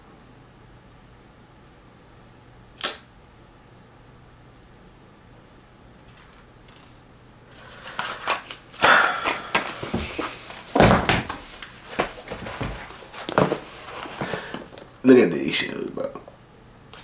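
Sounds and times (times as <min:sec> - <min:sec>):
sneaker rustling: 0:09.5 - 0:14.7
shoe thunks: 0:09.6 - 0:14.6.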